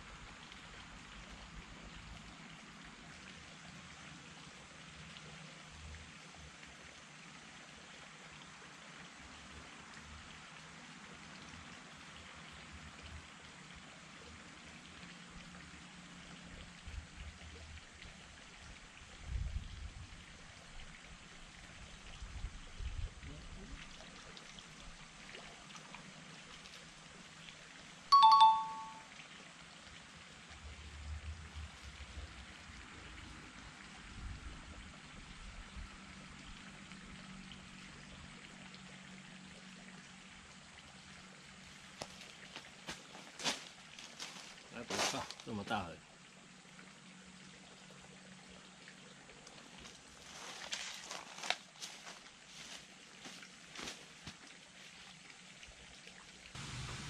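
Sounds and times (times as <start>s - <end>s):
faint outdoor hiss: 0.0s - 57.0s
two-note doorbell chime: 28.1s - 29.1s.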